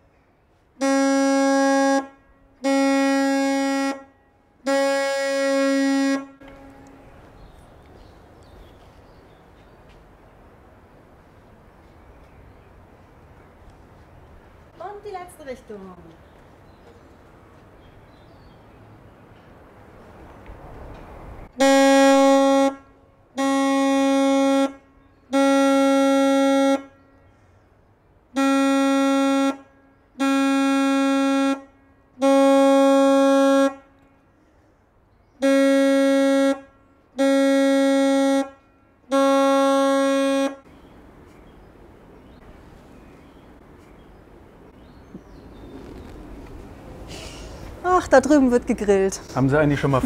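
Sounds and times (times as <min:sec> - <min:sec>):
horn blasts: 0:00.8 - 0:07.0, 0:21.5 - 0:27.3, 0:28.3 - 0:34.2, 0:35.4 - 0:40.7.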